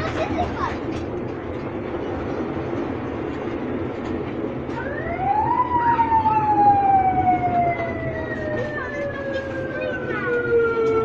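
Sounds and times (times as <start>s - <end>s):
amusement ride train rumbling: 0.0s - 11.0s
siren-like tone: 4.8s - 11.0s.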